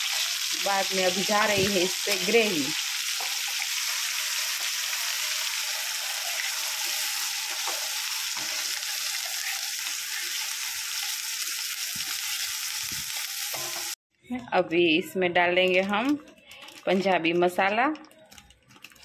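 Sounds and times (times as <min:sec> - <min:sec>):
hot oil sizzling: 0:00.0 - 0:14.0.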